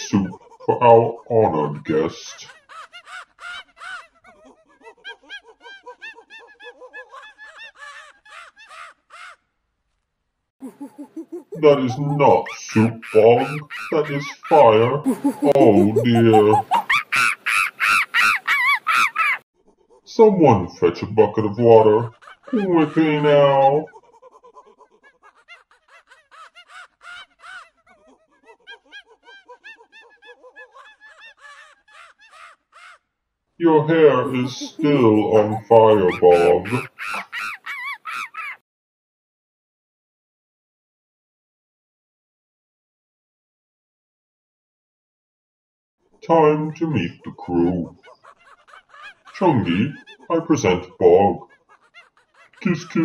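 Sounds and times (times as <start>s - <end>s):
birds chirping: 10.6s - 19.4s, 21.0s - 23.9s, 33.6s - 38.6s, 46.4s - 53.0s
squeaky puppet voice babbling: 10.6s - 19.4s, 34.2s - 38.6s.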